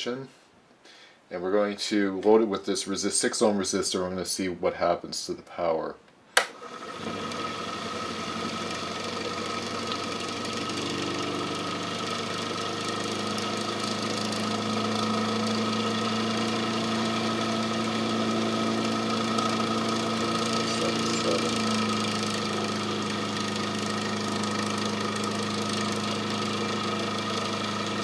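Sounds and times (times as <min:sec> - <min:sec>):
click: 0:06.1 - 0:06.6
electric motor humming and whining: 0:06.5 - 0:28.0.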